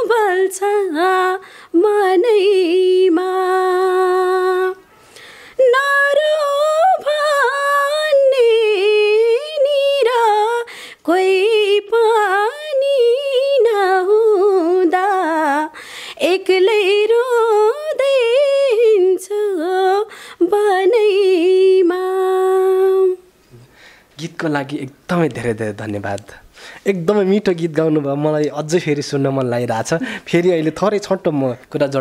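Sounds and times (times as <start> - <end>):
woman singing unaccompanied: 0.0 - 4.9, 5.6 - 23.3
breaths: 1.4 - 1.8, 4.9 - 5.6, 10.7 - 11.0, 15.7 - 16.2, 20.1 - 20.4, 23.4 - 24.2, 26.4 - 26.9, 30.0 - 30.3.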